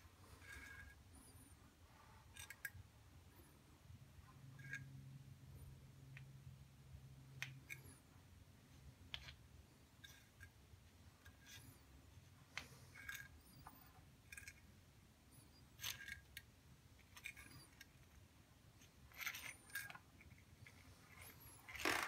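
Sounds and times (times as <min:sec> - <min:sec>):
low room hum: 0:00.0 - 0:22.0
metal wire scraping ceramic tile: 0:00.2 - 0:02.8, 0:04.3 - 0:05.0, 0:10.0 - 0:10.5, 0:11.2 - 0:11.9, 0:12.6 - 0:14.7, 0:15.3 - 0:16.4, 0:17.0 - 0:18.2, 0:18.8 - 0:22.0.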